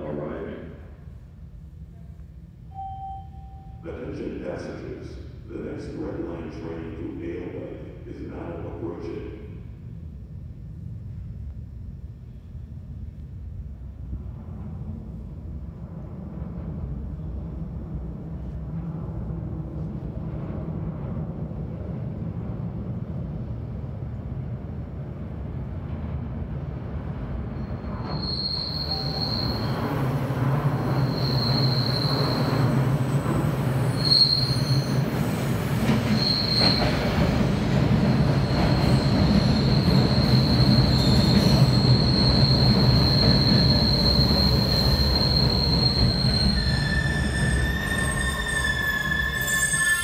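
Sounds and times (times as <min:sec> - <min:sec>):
subway train rumble: 0:00.0 - 0:50.0
train whining tones: 0:27.3 - 0:50.0
high wheel squeal: 0:27.6 - 0:35.4, 0:36.0 - 0:37.1, 0:38.3 - 0:50.0.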